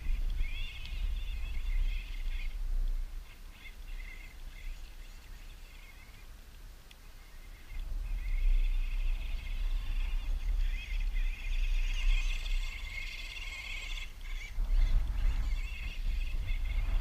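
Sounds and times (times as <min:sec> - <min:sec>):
wind on microphone: 0:00.0 - 0:17.0
electric toy car motor whine: 0:08.3 - 0:16.7.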